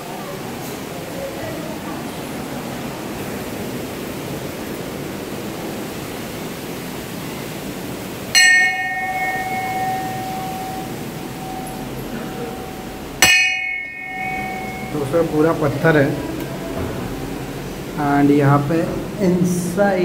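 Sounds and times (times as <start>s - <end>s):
steady rushing hiss: 0.0s - 20.0s
brass bell ringing: 8.4s - 15.6s.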